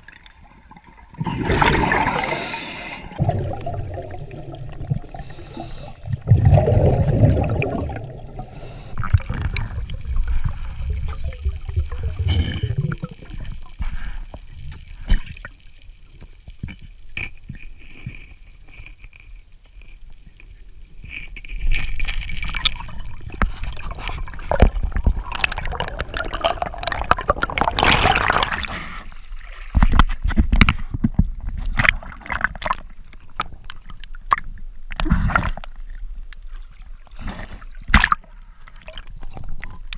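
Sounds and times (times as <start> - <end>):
underwater gurgling and bubbling: 0.0 - 15.6, 21.0 - 29.0
water splashes: 0.0 - 15.6, 21.1 - 30.9.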